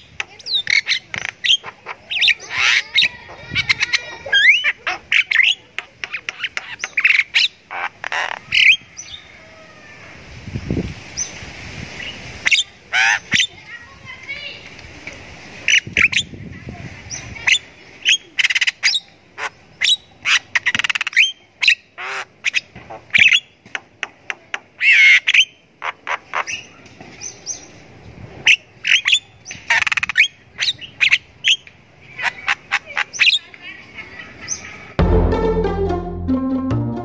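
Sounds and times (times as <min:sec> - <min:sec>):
myna bird calling: 0:00.0 - 0:10.1, 0:12.0 - 0:13.7, 0:17.1 - 0:27.8, 0:28.4 - 0:35.0.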